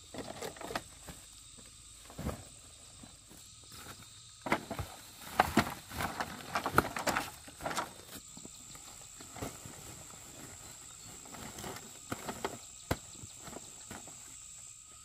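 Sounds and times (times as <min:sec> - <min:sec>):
plastic sacks knocking and rustling: 0:02.0 - 0:08.2.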